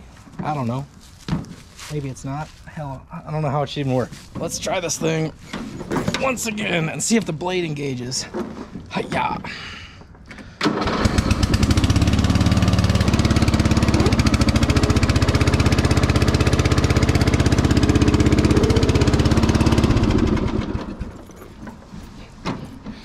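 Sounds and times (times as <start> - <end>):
lawn mower engine running: 10.7 - 21.9.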